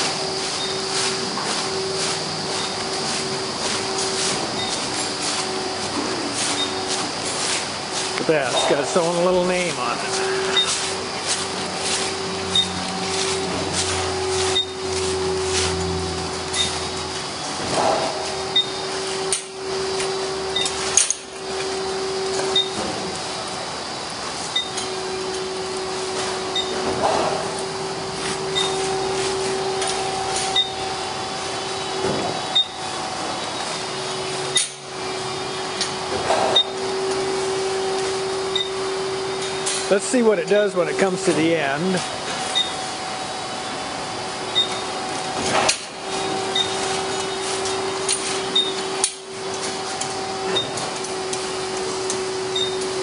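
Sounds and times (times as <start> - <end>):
robot electric whir: 0.0 - 40.6.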